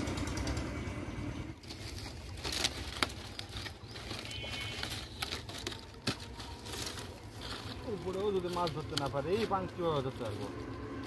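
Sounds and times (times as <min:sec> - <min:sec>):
steady low rumble: 0:00.0 - 0:11.0
dry palm fronds rustling: 0:01.5 - 0:11.0
fronds snapping: 0:01.6 - 0:09.8.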